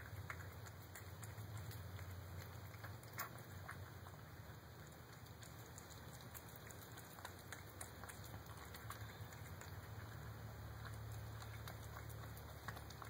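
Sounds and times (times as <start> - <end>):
cat chewing and licking: 0.0 - 13.0.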